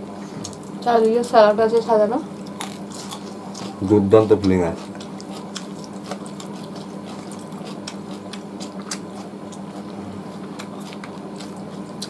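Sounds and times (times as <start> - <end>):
steady low hum: 0.0 - 12.0
mouths chewing: 2.4 - 12.0.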